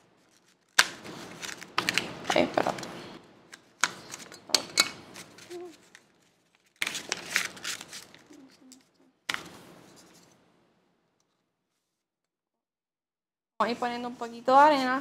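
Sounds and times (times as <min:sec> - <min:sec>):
paper rustling and crinkling: 0:00.0 - 0:04.4, 0:05.0 - 0:10.4.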